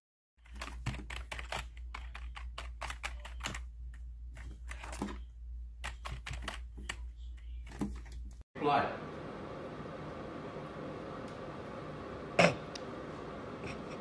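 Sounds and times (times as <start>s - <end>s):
steady low hum: 8.6s - 14.0s.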